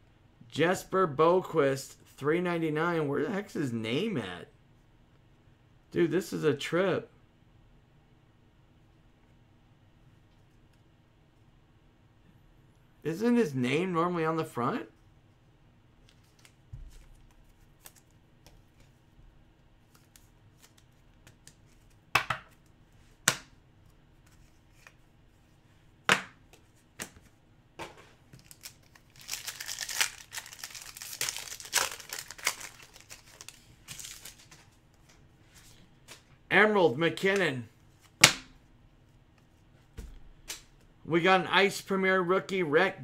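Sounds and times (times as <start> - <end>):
foil wrapper tearing and crinkling: 28.4 - 34.6.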